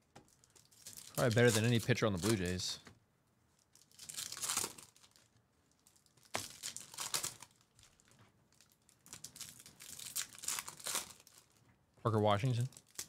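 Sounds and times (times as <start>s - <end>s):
foil wrappers crinkling and tearing: 0.3s - 2.8s, 3.6s - 11.6s, 12.5s - 13.0s.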